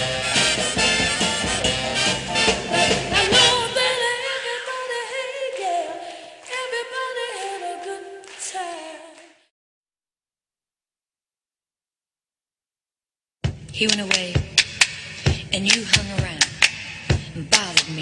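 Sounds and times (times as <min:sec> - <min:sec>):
pop band playing: 0:00.0 - 0:04.0
voices singing: 0:00.7 - 0:09.4.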